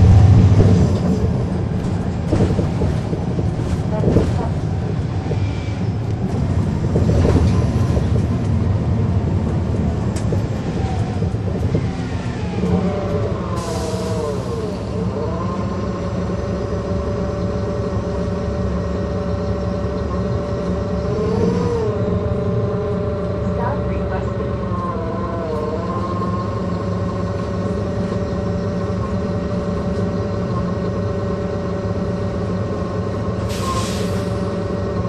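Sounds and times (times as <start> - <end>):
bus engine rumble: 0.0 - 35.0
drivetrain whine: 14.3 - 33.6.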